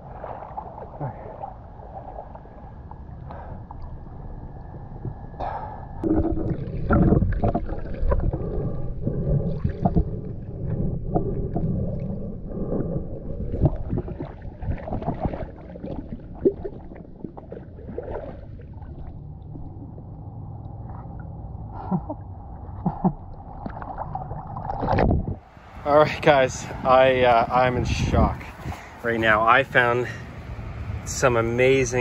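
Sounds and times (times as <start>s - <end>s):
muffled underwater gurgling: 0.0s - 25.4s
knocks and sloshes: 0.0s - 25.8s.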